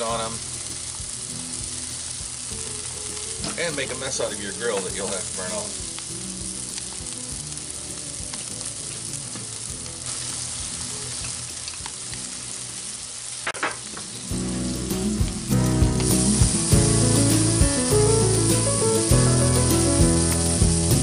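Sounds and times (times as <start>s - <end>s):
skewers sizzling on grill: 0.0s - 21.0s
skewers knocking and scraping on grate: 13.4s - 14.2s.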